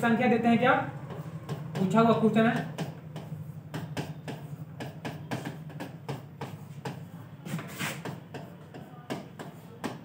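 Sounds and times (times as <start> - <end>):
stylus scratchy stroke: 6.5 - 8.1.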